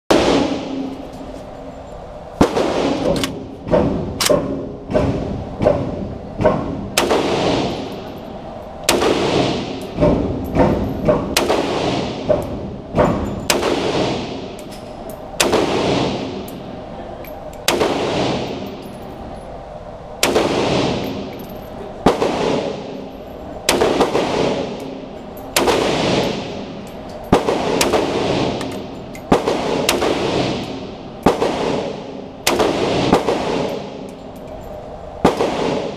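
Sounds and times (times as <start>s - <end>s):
rifle shots echoing indoors: 0.1s - 1.0s, 2.4s - 8.2s, 8.8s - 14.8s, 15.4s - 16.6s, 17.6s - 18.9s, 20.2s - 34.2s, 35.2s - 35.9s.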